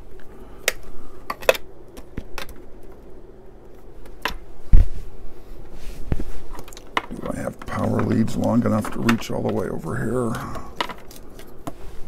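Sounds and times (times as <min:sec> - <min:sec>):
cables and connectors clicking: 0:06.5 - 0:11.8.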